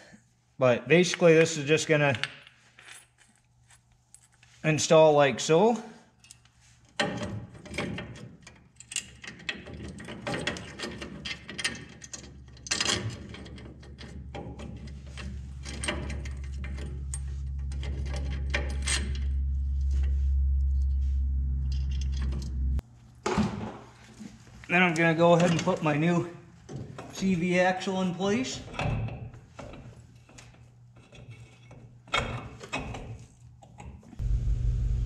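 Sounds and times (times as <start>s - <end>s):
metal parts clinking: 6.2s - 19.5s
low steady hum: 14.3s - 23.2s, 34.2s - 35.0s.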